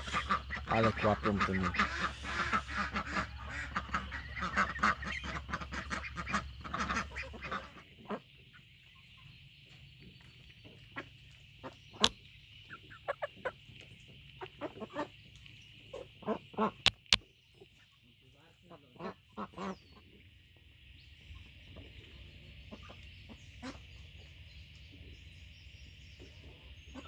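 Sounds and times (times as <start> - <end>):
ducks quacking: 0.0 - 9.2, 10.6 - 15.2, 15.8 - 17.1, 18.5 - 20.3, 21.3 - 24.3, 26.3 - 27.0
hens calling: 0.0 - 9.3, 10.6 - 17.1, 21.3 - 25.1, 26.2 - 27.0
sharp clicks: 16.8 - 17.2.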